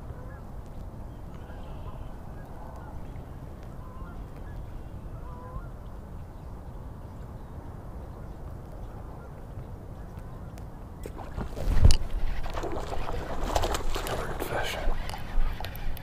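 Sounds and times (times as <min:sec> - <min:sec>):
distant waterfowl honks: 0:00.0 - 0:00.4, 0:01.4 - 0:03.1, 0:03.7 - 0:05.9.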